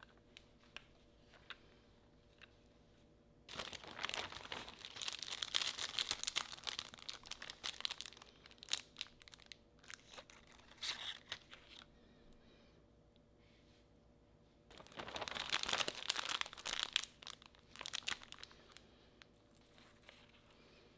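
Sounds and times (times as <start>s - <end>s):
plastic bag crinkling: 3.5s - 11.9s, 14.7s - 18.8s.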